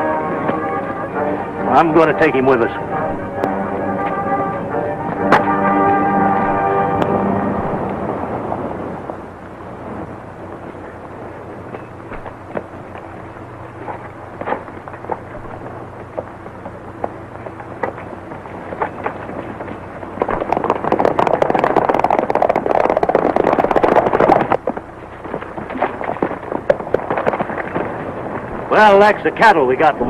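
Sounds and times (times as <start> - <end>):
film soundtrack hiss: 0.0 - 30.0
horses galloping hoofbeats: 10.4 - 30.0.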